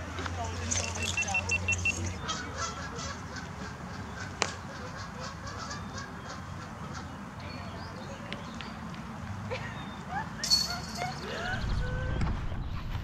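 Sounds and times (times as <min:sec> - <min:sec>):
bird calls: 0:00.7 - 0:08.8.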